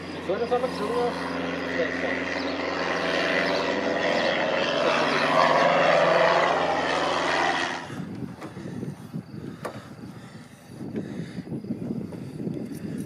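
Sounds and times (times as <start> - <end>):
propeller plane engine: 0.0 - 13.0.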